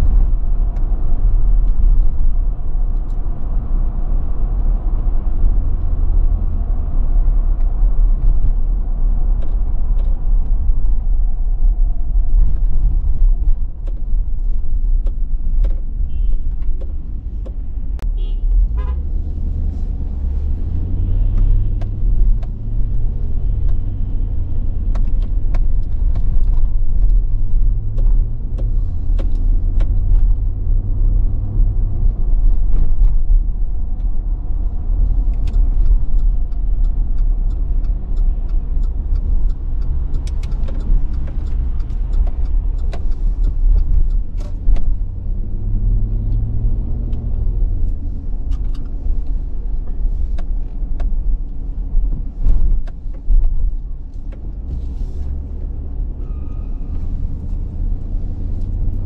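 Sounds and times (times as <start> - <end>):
car engine and road rumble: 0.0 - 59.0.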